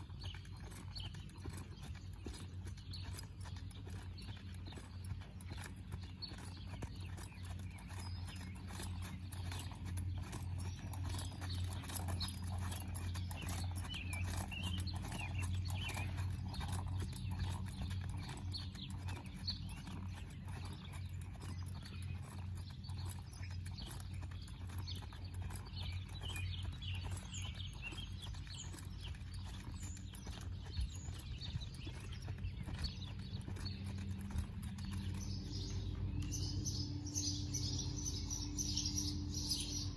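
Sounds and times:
birds chirping: 0:00.0 - 0:39.9
horse hoofbeats on soft dirt: 0:00.0 - 0:39.9
steady low rumble: 0:30.2 - 0:39.9.

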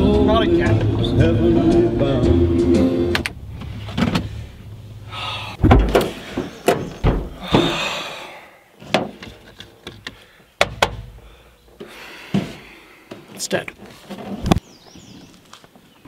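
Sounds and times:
car door shutting: 0:03.1 - 0:04.4
car hood unlatched and raised: 0:05.6 - 0:07.4.

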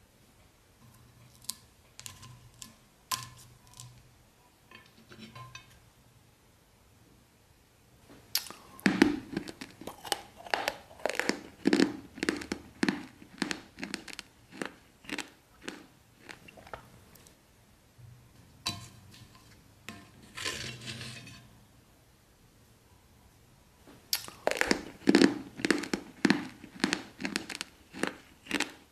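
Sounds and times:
crunchy biting and chewing: 0:08.4 - 0:17.0, 0:24.1 - 0:28.9.

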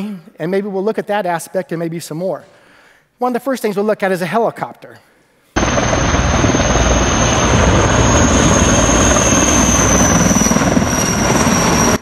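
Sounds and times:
helicopter rotor and turbine noise: 0:05.6 - 0:12.0
thin high whine: 0:05.6 - 0:12.0.

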